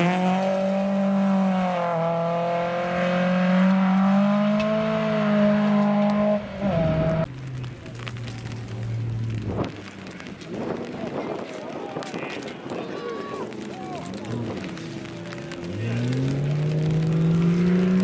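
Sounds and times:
rally car engine revving high: 0.0s - 7.3s, 14.2s - 18.0s
second rally car engine: 0.0s - 11.2s, 13.6s - 18.0s.

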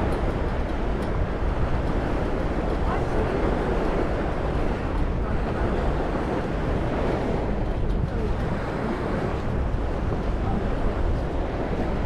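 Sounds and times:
water rushing along hull: 0.0s - 12.0s
wind on microphone: 0.0s - 12.0s.

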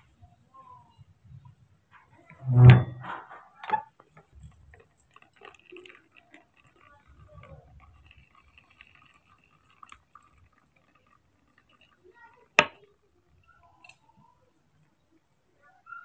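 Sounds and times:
juice dripping into plastic tub: 3.8s - 15.2s.

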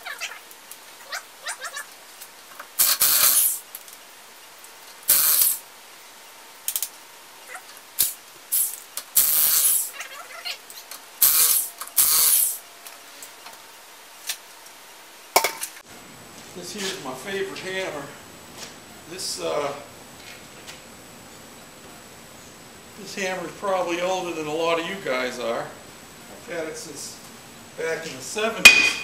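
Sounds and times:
impact wrench bursts: 2.8s - 3.7s, 5.1s - 5.6s, 8.0s - 10.0s, 11.2s - 12.6s.

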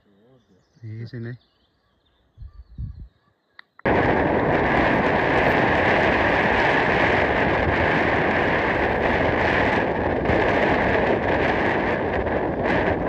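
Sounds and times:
wind rushing on microphone: 2.3s - 3.1s, 3.8s - 13.0s.

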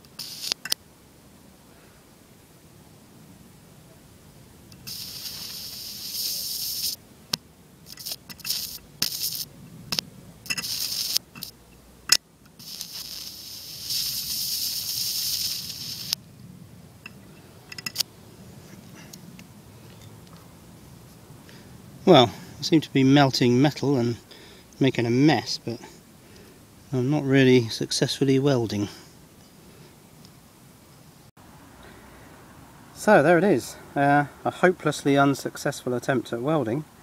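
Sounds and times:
electric arc hissing and crackling: 0.0s - 0.8s, 4.7s - 16.2s.

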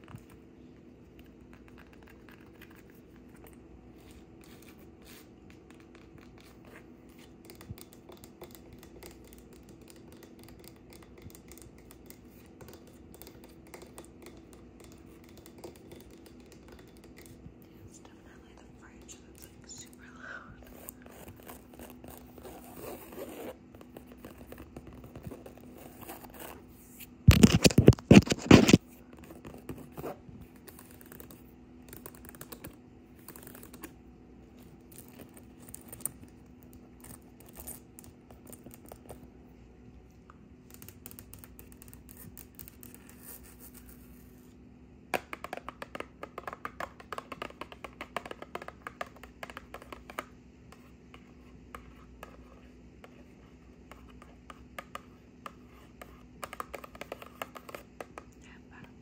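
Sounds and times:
fingernails tapping on cardboard: 7.2s - 17.5s, 45.1s - 52.4s, 53.9s - 58.3s
fingernails scratching on fabric: 20.6s - 31.2s.

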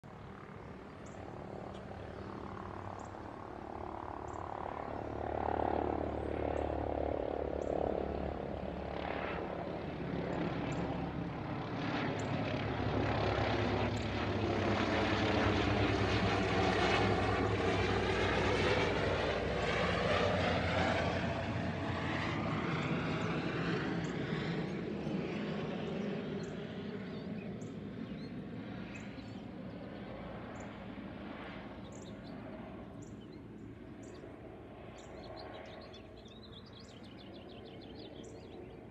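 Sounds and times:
helicopter flying overhead: 0.0s - 38.9s.

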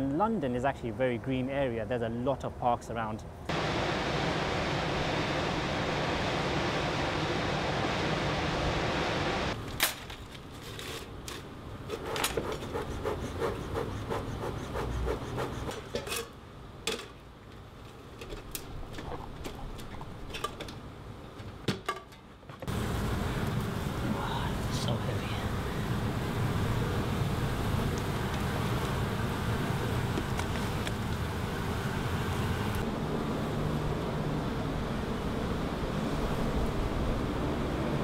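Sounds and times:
steady rushing noise: 3.5s - 9.6s.

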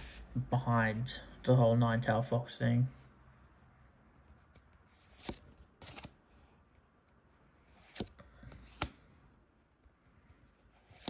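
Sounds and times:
cards sliding swishes: 4.5s - 6.2s, 7.6s - 9.1s, 10.7s - 11.0s.

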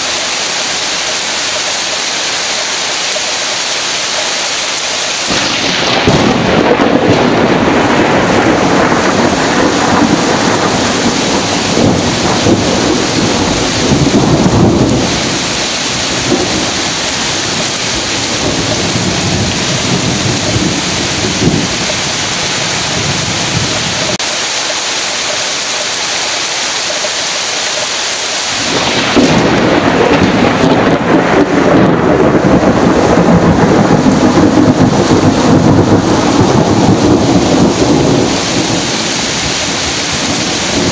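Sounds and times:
heavy rain hissing: 0.0s - 40.9s
thunder rumbling: 4.7s - 24.3s, 28.5s - 40.9s.

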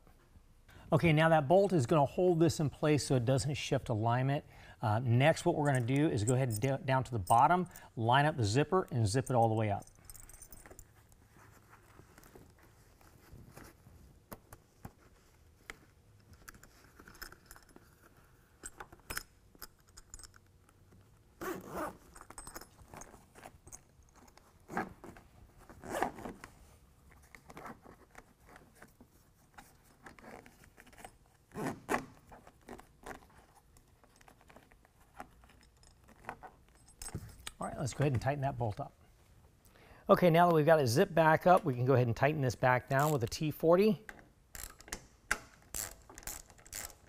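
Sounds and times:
zipper being zipped closed: 21.4s - 22.2s, 24.7s - 26.4s, 31.5s - 33.3s.

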